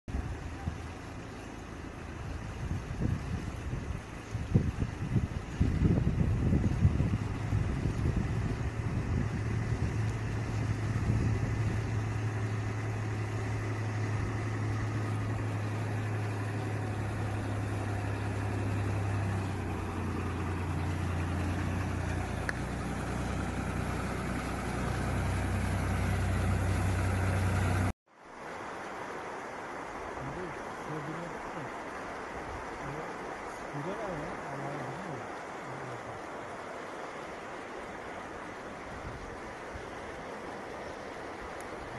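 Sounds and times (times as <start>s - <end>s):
flowing water rushing: 0.1s - 41.9s
tractor engine running: 9.2s - 27.9s.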